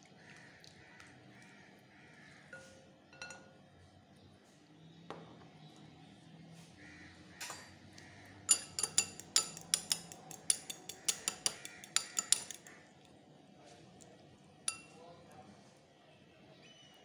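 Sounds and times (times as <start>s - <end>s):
utensil clinking against glass bowl: 2.5s - 3.6s, 8.5s - 12.7s, 14.7s - 15.0s.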